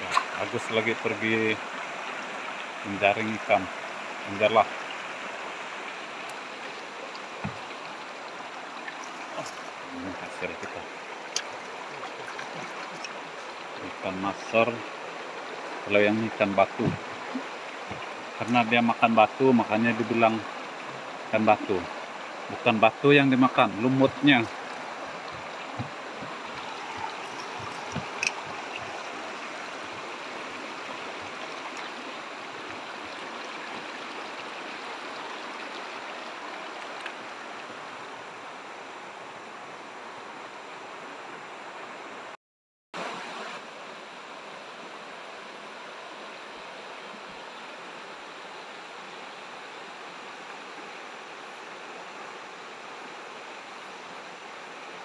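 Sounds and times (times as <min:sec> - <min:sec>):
river running over rocks: 0:00.0 - 0:42.3, 0:43.0 - 0:55.0.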